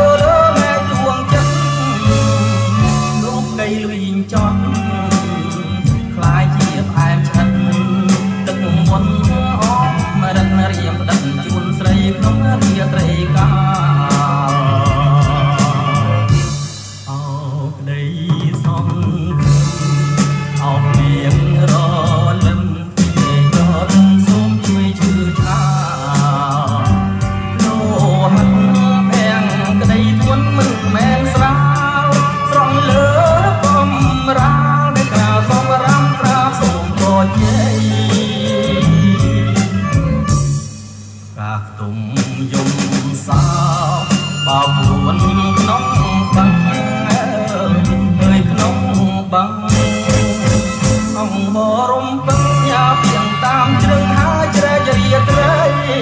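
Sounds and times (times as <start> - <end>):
drum beat: 0.0 - 17.0, 18.3 - 41.0, 49.7 - 51.6, 52.3 - 56.0
drum hits: 0.0 - 17.2, 49.7 - 51.7, 52.3 - 56.0
person singing: 0.0 - 40.6, 41.4 - 56.0
deep bass line: 0.0 - 56.0.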